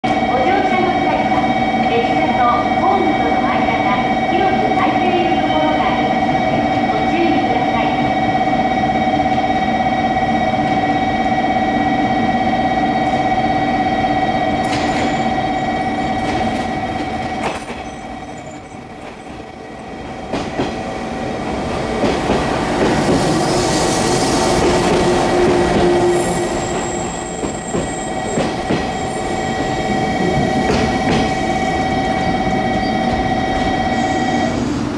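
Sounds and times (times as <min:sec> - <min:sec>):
train wheels squealing: 0:12.5 - 0:21.5, 0:22.9 - 0:34.8
train wheels knocking over rail joints: 0:22.0 - 0:23.4, 0:24.6 - 0:31.4.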